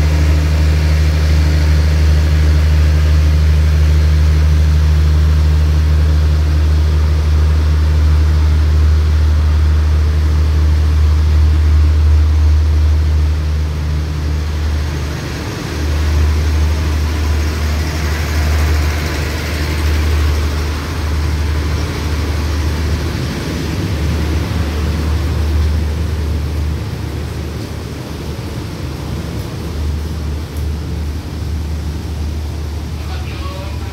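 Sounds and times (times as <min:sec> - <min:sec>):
diesel train engine humming: 0:00.0 - 0:33.9
train coaches rumbling past: 0:00.0 - 0:33.9.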